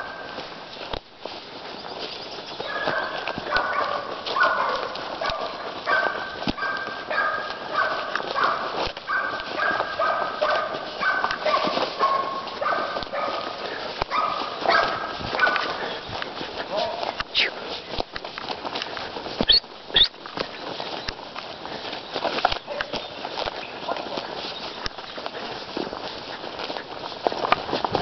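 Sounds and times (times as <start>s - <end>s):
twigs snapping underfoot: 0.1s - 28.0s
dog barking: 2.6s - 16.0s, 16.7s - 17.5s, 22.7s - 23.0s, 23.8s - 24.2s.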